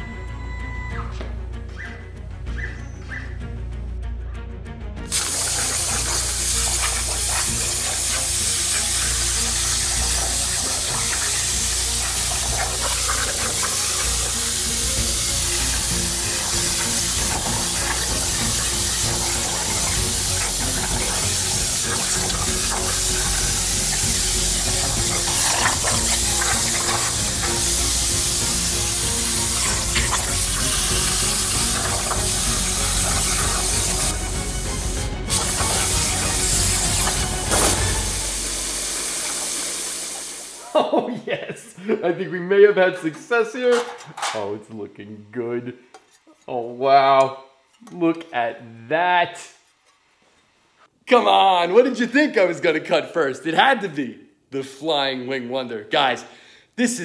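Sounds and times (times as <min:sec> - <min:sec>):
plasma torch hissing: 0:05.1 - 0:40.8
watery sizzle: 0:05.1 - 0:40.8.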